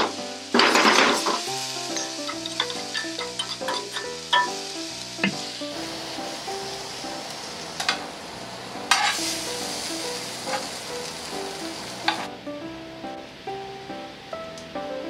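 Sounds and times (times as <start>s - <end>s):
food sizzling in oil: 0.0s - 14.6s
chopsticks clicking on pan: 2.0s - 4.5s.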